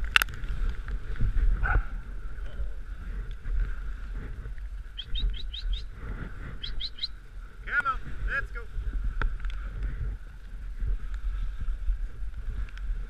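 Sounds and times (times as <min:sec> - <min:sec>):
sled runners rumbling and rattling: 0:00.0 - 0:13.0.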